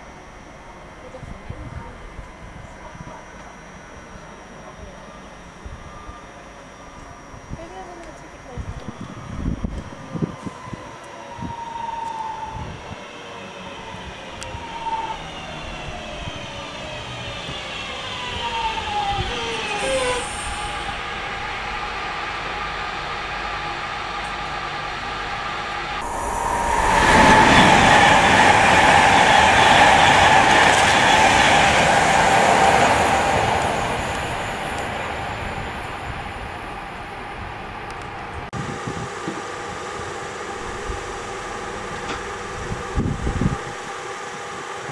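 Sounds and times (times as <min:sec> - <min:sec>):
train traction motor whine: 0:00.0 - 0:44.9
fast train passing: 0:11.3 - 0:44.9.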